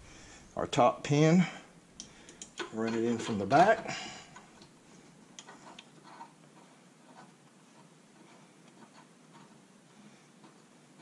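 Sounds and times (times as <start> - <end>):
small clicks and scraping: 2.0 - 11.0.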